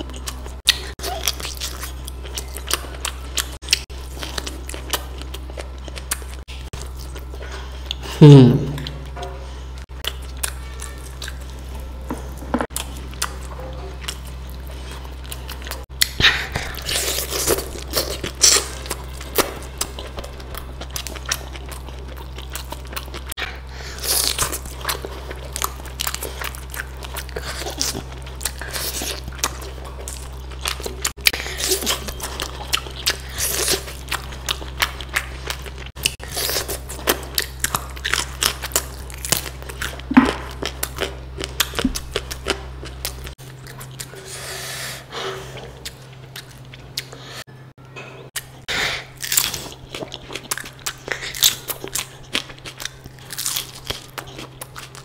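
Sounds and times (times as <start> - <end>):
crunchy bites and chewing: 12.6 - 44.2, 48.4 - 55.0.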